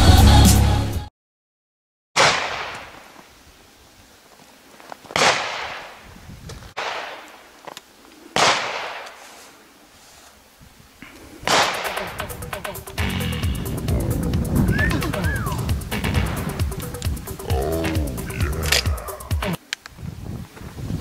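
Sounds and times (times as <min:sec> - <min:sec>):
gunshots echoing: 0:02.2 - 0:03.1, 0:05.1 - 0:06.0, 0:06.8 - 0:07.5, 0:08.4 - 0:09.2, 0:11.5 - 0:13.2.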